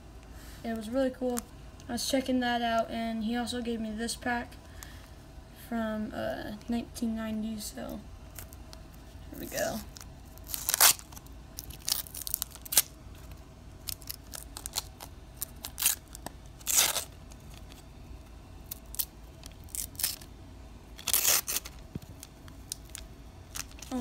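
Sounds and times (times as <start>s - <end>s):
card pack wrapper tearing: 9.4s - 13.0s, 13.8s - 17.8s, 18.6s - 20.3s, 21.0s - 24.0s.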